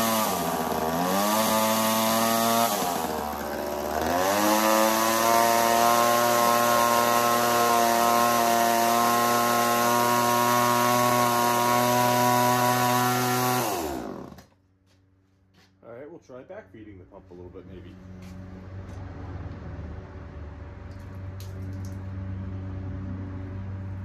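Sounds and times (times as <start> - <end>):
two-stroke engine revving: 0.0 - 14.5.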